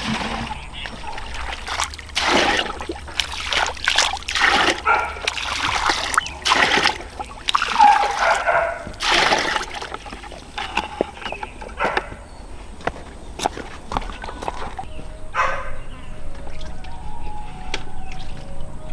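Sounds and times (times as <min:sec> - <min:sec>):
water poured into plastic bucket: 0:00.0 - 0:11.5.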